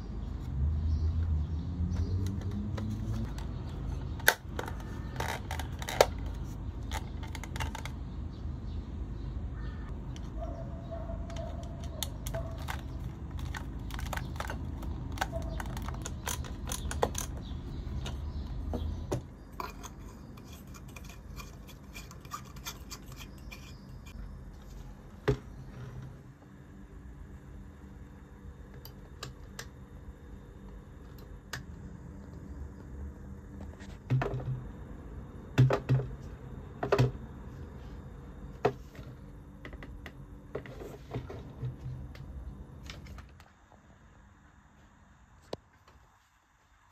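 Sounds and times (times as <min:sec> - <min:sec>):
plastic housing scratching: 0:02.2 - 0:08.1, 0:11.3 - 0:18.5.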